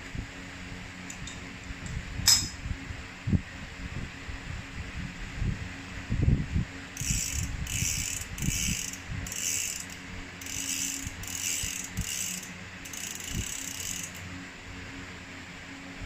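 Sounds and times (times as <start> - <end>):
bicycle hub ratcheting clicks: 7.0 - 14.3.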